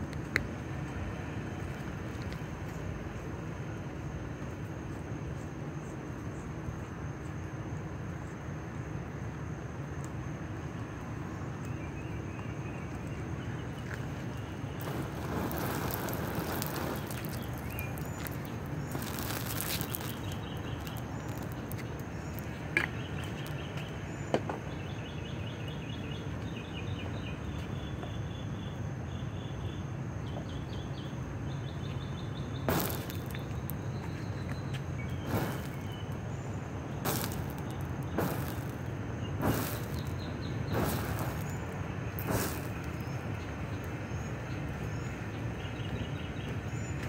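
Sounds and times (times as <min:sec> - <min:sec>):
insects chirping: 0:00.0 - 0:47.0
fuel fire burning and whooshing: 0:13.7 - 0:24.3, 0:32.6 - 0:45.1
sharp pops: 0:14.8 - 0:24.7, 0:32.6 - 0:36.3, 0:36.9 - 0:44.0.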